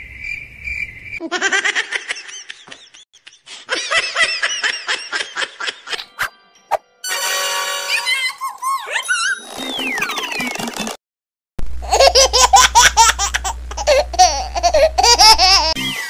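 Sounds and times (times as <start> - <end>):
steady buzzing tone: 11.6 - 15.8
high-pitched laughter: 11.8 - 16.0.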